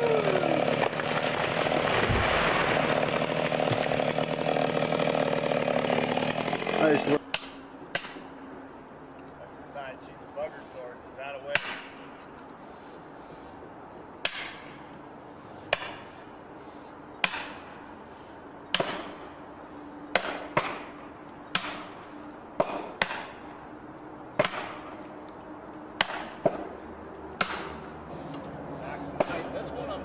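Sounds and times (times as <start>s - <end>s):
hammer striking wedges: 7.3s - 8.3s, 11.5s - 12.1s, 14.2s - 14.8s, 15.6s - 16.1s, 17.2s - 17.8s, 18.7s - 19.2s, 20.1s - 20.9s, 21.5s - 22.0s, 22.6s - 23.4s, 24.4s - 25.0s, 26.0s - 26.7s, 27.4s - 27.8s, 29.2s - 29.5s.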